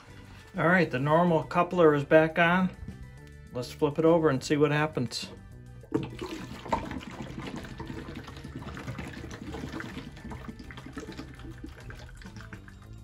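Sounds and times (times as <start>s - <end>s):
rapid irregular bubbling: 5.8s - 13.0s
water glugging from bottle: 5.8s - 13.0s.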